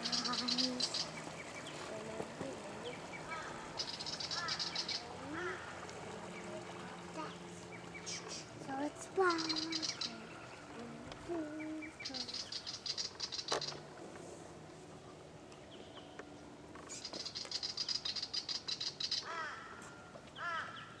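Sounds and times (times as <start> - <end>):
birds chattering trills: 0.0 - 14.0, 14.6 - 21.0.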